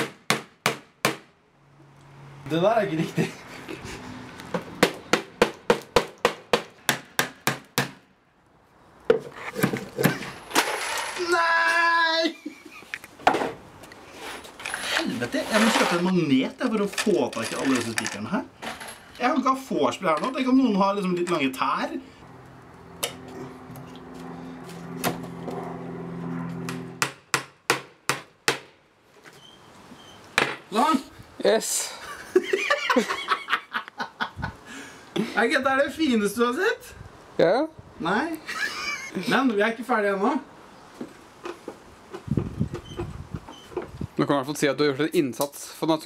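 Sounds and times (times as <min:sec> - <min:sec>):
hammer striking nail into wood: 0:00.0 - 0:01.3, 0:04.8 - 0:08.0, 0:26.7 - 0:28.8.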